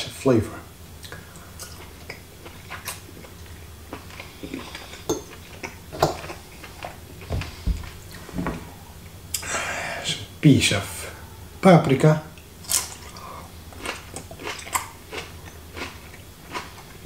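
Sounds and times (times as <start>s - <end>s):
soft low thumps: 7.3s - 8.8s.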